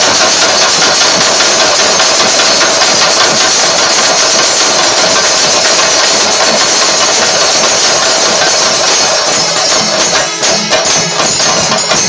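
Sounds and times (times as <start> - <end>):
drums beaten with sticks: 0.0 - 12.0
cymbals hissing: 3.8 - 12.0.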